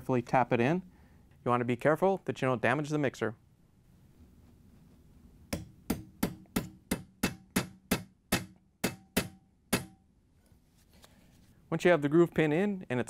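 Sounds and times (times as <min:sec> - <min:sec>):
small hammer tapping a punch: 0:05.5 - 0:10.0.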